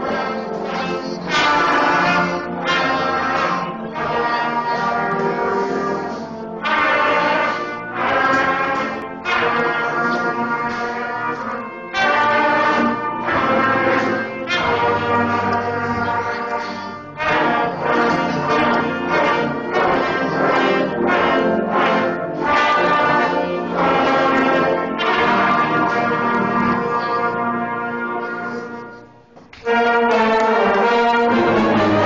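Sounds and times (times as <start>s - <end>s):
brass band playing: 0.0s - 32.0s.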